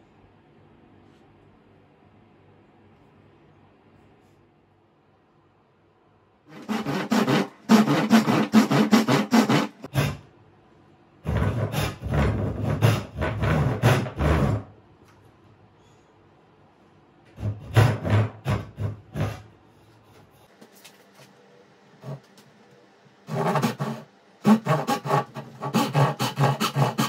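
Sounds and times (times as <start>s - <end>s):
hand tool stroking wood: 6.5s - 9.9s, 23.3s - 27.0s.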